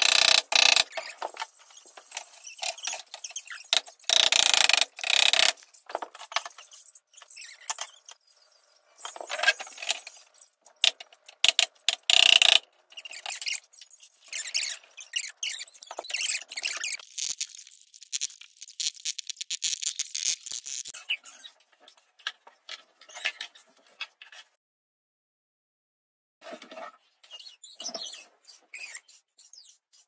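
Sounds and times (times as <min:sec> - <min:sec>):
wooden parts clacking and scraping: 0:15.8 - 0:21.0.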